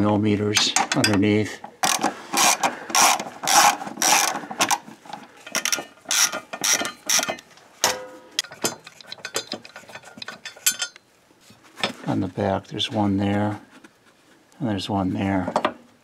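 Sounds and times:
hand ratchet clicking: 0:01.8 - 0:04.8, 0:05.5 - 0:07.4.

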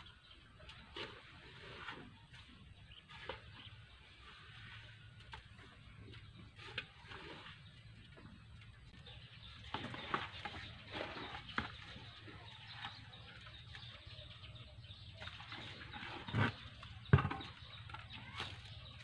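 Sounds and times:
trowel scraping wet concrete: 0:15.3 - 0:16.9.

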